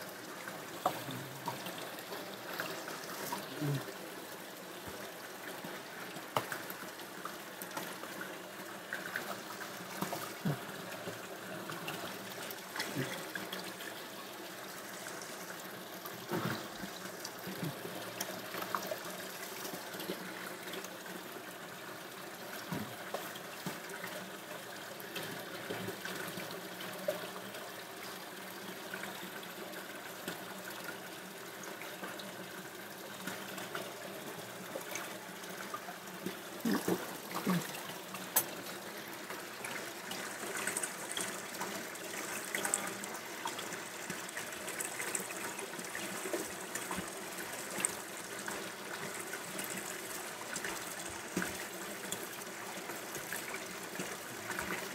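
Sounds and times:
tap water splashing: 0.8 - 3.5, 22.6 - 23.8, 38.3 - 38.6, 50.6 - 52.3.

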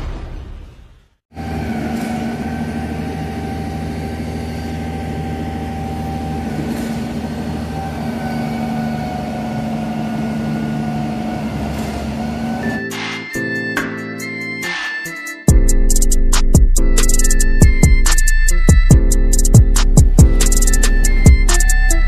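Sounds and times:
heavy machinery engine running: 1.3 - 13.2, 19.1 - 22.0.

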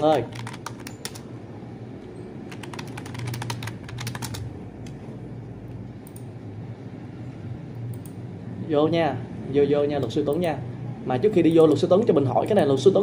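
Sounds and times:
keyboard key clicks: 0.0 - 1.2
low steady hum: 0.0 - 13.0.

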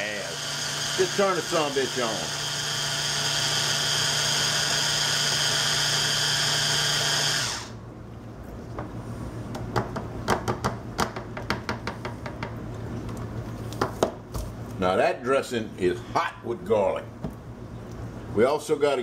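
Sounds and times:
stick blender running: 0.0 - 7.8.

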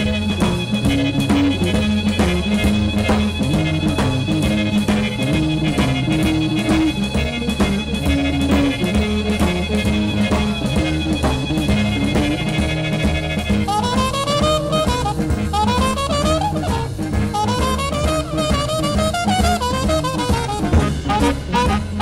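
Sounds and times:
drum kit beat: 0.0 - 22.0
guitar: 0.0 - 22.0
live band playing boogie-woogie: 0.0 - 22.0.

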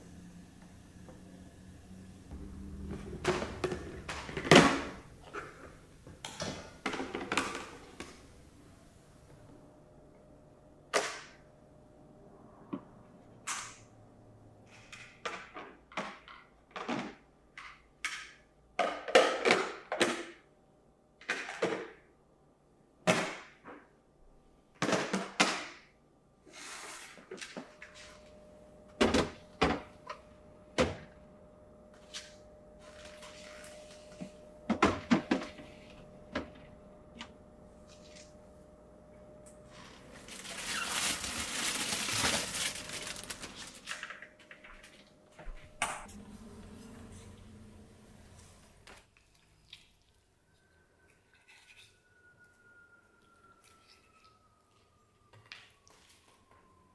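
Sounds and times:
plastic containers knocking and clunking: 2.9 - 8.2
plastic bag rustling: 39.7 - 45.0.

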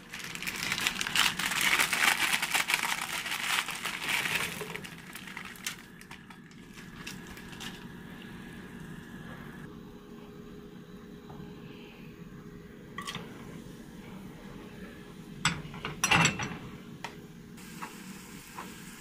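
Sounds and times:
plastic packet crinkling: 0.0 - 8.0
steady hiss: 17.6 - 19.0.

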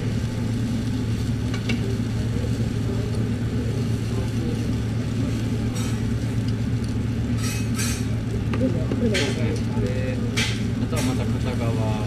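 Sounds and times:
batter sizzling: 0.0 - 12.0
steady low hum: 0.0 - 12.0.

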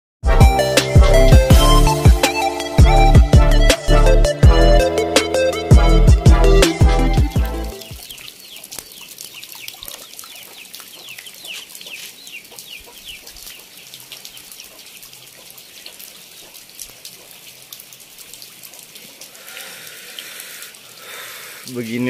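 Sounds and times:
birds chirping: 5.0 - 17.6
rain hissing on ground: 7.4 - 22.0.

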